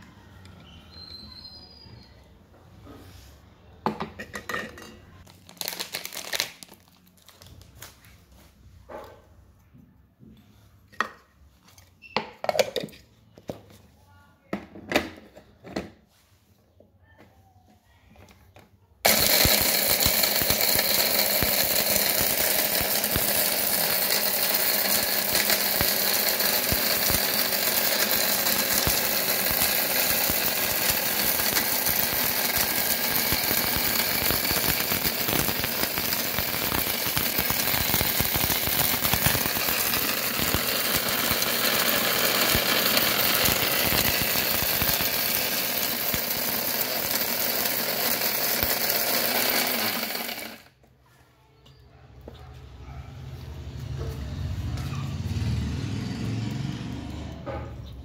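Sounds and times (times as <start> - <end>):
mixer grinder motor rattling: 19.0 - 50.8.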